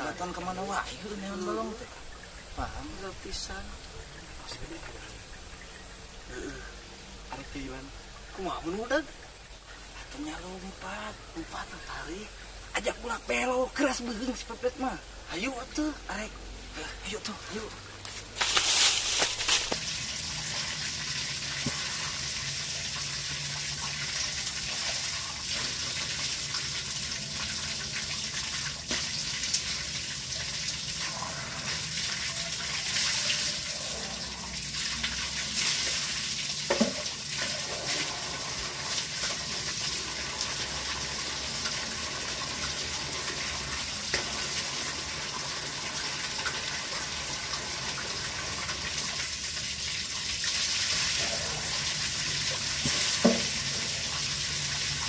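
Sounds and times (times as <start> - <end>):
water rushing along a ditch: 15.4 - 55.0.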